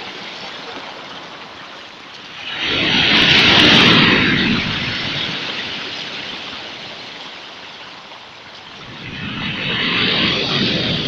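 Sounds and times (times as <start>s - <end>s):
foam washing up the shore: 2.2s - 11.0s.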